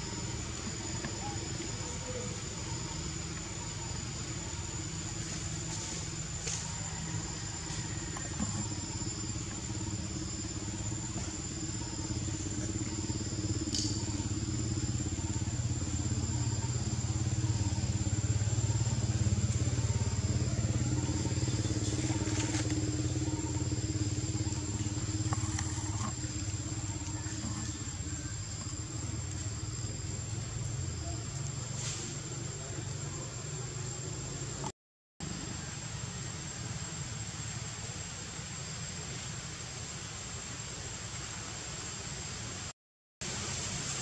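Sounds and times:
motor engine running: 0:00.0 - 0:34.7
high-pitched whine: 0:00.0 - 0:42.7.

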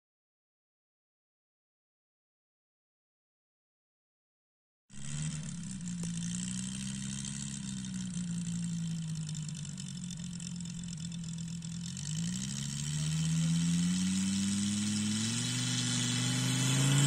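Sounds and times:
model plane engine running: 0:05.0 - 0:17.0.

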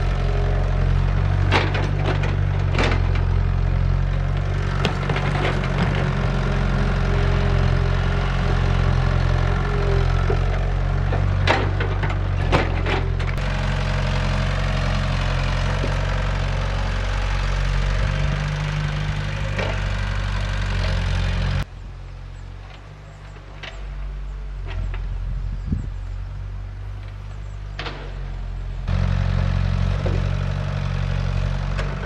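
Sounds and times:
diesel engine running: 0:00.0 - 0:32.0.

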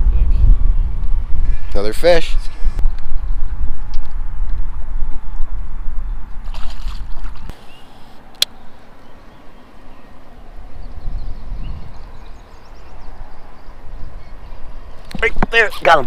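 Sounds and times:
wind rumble: 0:00.0 - 0:07.6, 0:10.1 - 0:16.0
water sloshing against boat: 0:06.4 - 0:07.5
fish splashing into water: 0:06.5 - 0:07.5.

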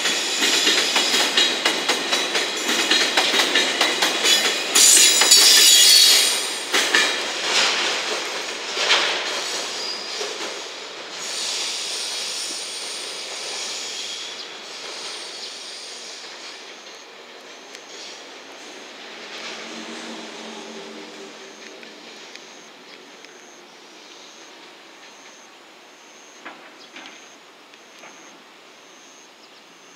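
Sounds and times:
train wheels clicking over rail joints: 0:00.0 - 0:20.5.

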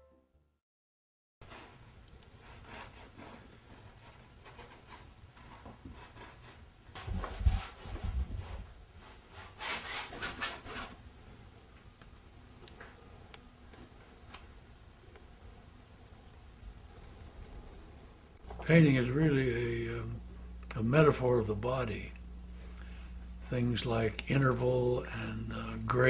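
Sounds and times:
paintbrush scrubbing on canvas: 0:02.4 - 0:11.0.

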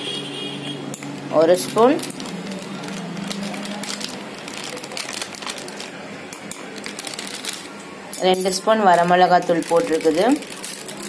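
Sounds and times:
foil packet crinkling: 0:01.5 - 0:07.8, 0:08.9 - 0:11.0.

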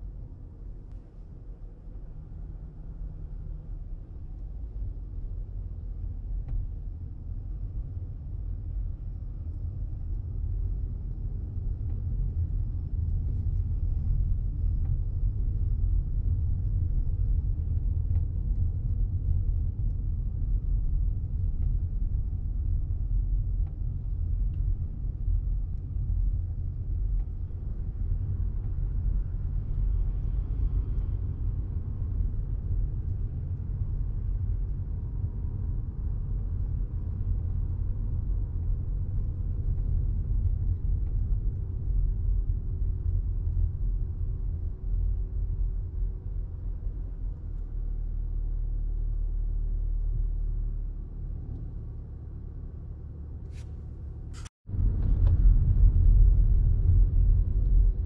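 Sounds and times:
road and drivetrain rumble in car: 0:00.0 - 0:58.0.

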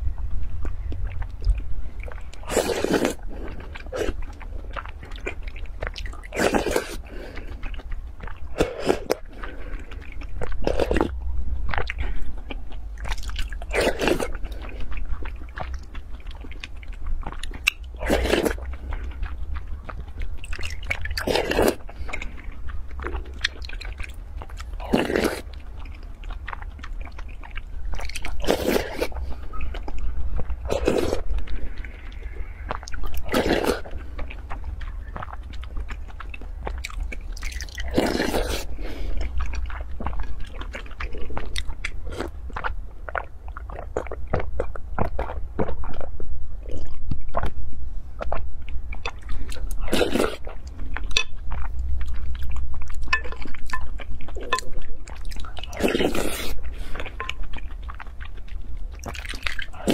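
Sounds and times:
chewing: 0:00.0 - 0:59.9
slurping: 0:02.3 - 0:07.7, 0:27.9 - 0:29.7, 0:37.1 - 0:40.2, 0:53.6 - 0:58.4
low hum: 0:09.2 - 0:28.4.

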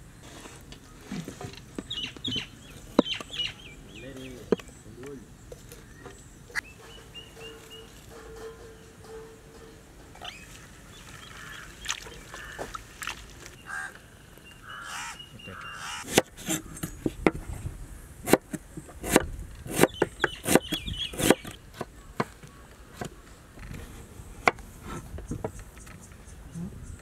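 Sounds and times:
bird calls: 0:00.7 - 0:17.0, 0:19.7 - 0:23.7
knife chopping on wooden board: 0:16.1 - 0:16.6, 0:18.3 - 0:21.6.

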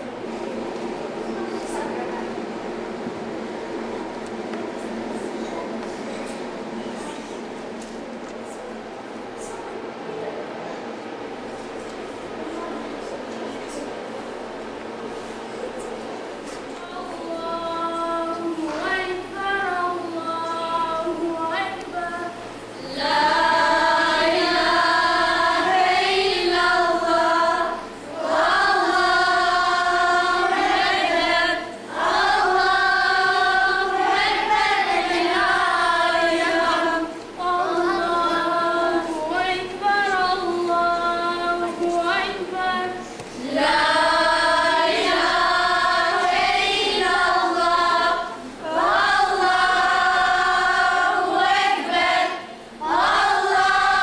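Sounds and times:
girls singing unaccompanied: 0:16.6 - 0:54.0.

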